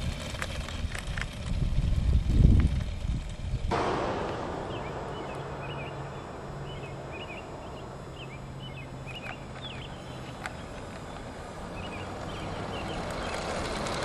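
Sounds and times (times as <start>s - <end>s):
steady low hum: 3.7s - 11.7s
small birds chirping: 4.7s - 13.7s.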